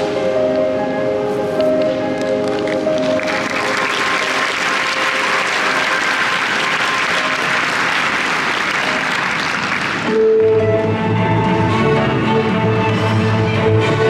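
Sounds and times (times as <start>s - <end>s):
music: 0.0s - 14.0s
audience applauding: 2.4s - 10.2s.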